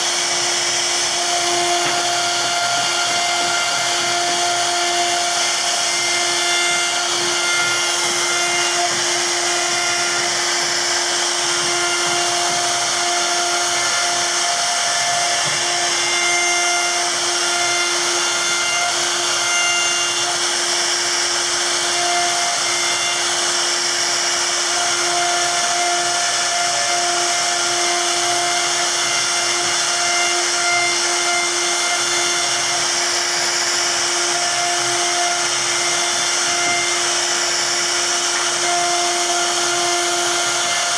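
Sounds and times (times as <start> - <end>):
cutter hissing through wood: 0.0 - 40.9
router spindle whining: 0.0 - 40.9.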